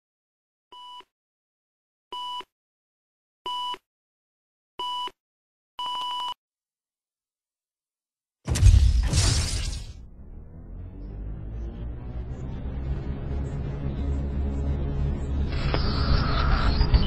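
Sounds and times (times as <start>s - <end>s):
loud crash with deep rumble: 8.5s - 11.2s.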